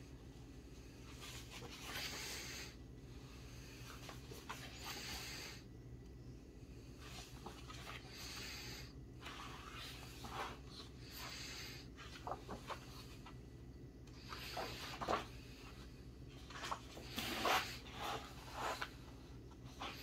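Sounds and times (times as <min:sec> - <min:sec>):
book pages turning: 0:01.1 - 0:02.4, 0:03.8 - 0:05.1, 0:07.0 - 0:08.5, 0:09.2 - 0:13.4, 0:14.1 - 0:20.0.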